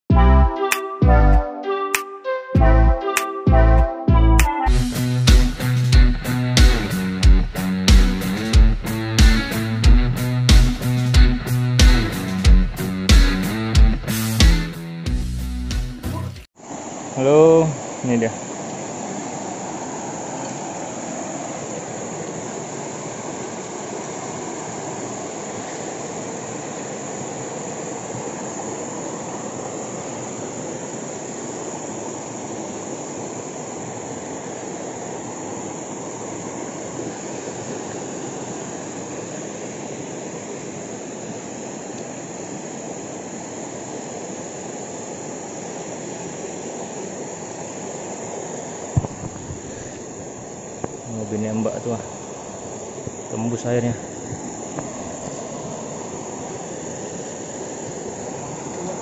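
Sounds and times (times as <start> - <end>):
high insect drone: 4.7 - 59.0
river water rushing over rocks: 16.6 - 59.0.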